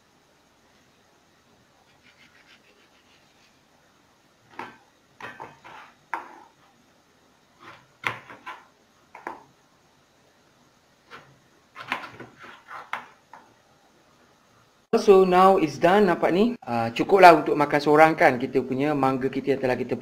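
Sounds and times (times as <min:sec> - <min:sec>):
knife scraping fruit: 0:01.9 - 0:03.6, 0:05.4 - 0:06.5, 0:11.1 - 0:13.0.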